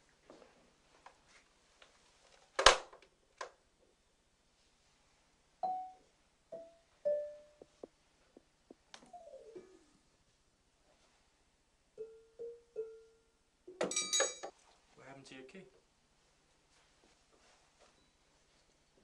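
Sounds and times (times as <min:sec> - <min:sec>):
xylophone notes: 0:05.6 - 0:07.8.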